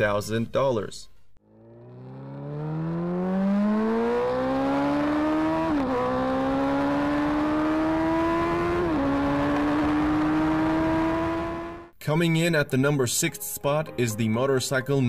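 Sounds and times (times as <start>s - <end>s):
motorcycle engine accelerating hard: 1.4s - 11.9s.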